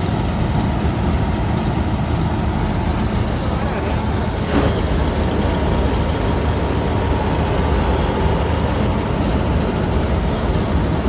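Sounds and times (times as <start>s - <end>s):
combine harvester running: 0.0s - 11.0s.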